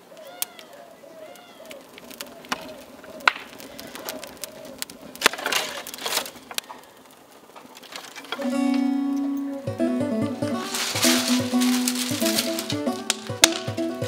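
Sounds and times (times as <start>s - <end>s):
bird calling: 0.0s - 14.0s
fire crackling: 0.0s - 14.0s
sticks knocking and snapping: 1.3s - 8.5s, 10.4s - 14.0s.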